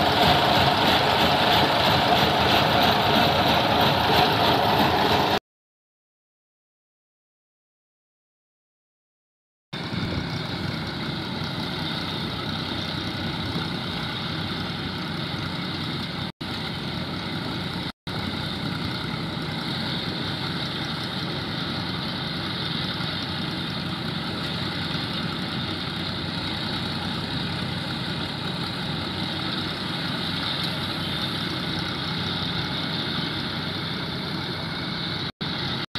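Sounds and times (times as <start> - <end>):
diesel tractor engine under load: 0.0 - 5.4, 9.8 - 35.9
threshing drum running: 0.0 - 5.4.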